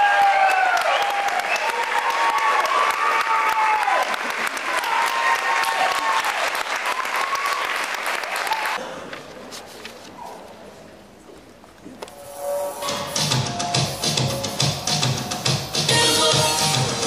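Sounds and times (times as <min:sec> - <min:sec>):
audience applauding: 0:00.0 - 0:08.8
people cheering: 0:00.0 - 0:08.8, 0:12.8 - 0:17.0.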